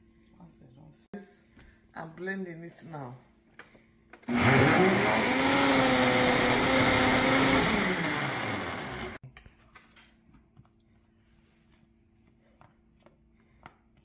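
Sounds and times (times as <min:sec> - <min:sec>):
blender motor running: 0:04.2 - 0:09.2.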